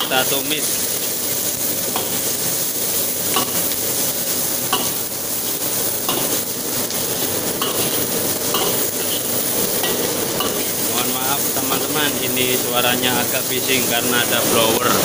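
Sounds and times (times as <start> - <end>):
food sizzling in hot oil: 0.0 - 15.0
metal spatula scraping a wok: 7.6 - 11.0.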